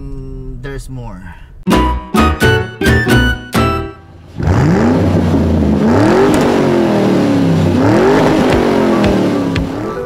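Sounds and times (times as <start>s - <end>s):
car engine revving: 4.1s - 10.0s.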